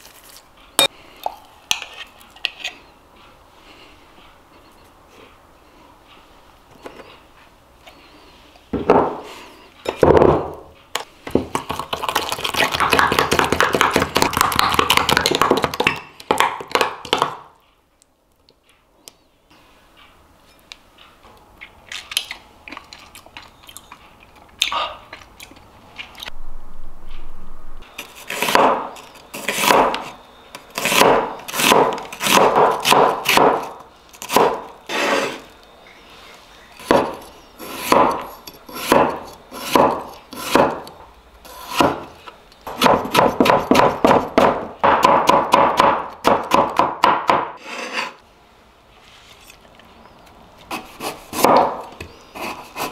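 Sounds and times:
cleaver cutting on wooden board: 0:47.6 - 0:48.2.

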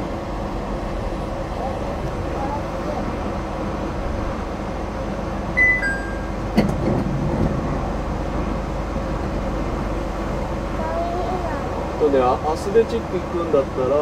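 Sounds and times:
steady hum inside train car: 0:00.0 - 0:14.0
two-note electronic beep: 0:05.6 - 0:06.4.

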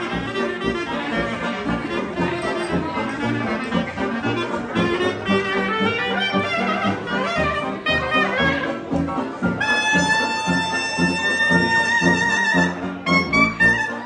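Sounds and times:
clarinet playing lead: 0:00.0 - 0:14.0
piano: 0:00.0 - 0:14.0.

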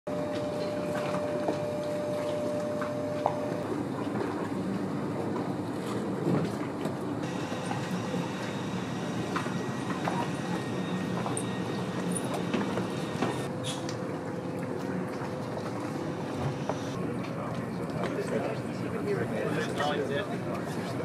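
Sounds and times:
machinery drone: 0:07.2 - 0:13.6, 0:15.6 - 0:17.1.

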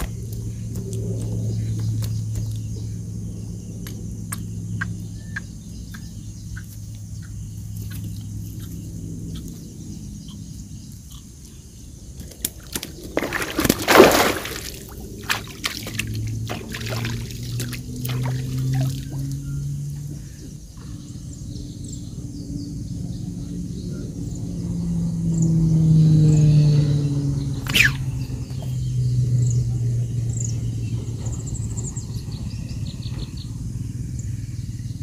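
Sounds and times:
low steady hum: 0:00.0 - 0:35.0
fish splashing in water: 0:12.2 - 0:19.4.

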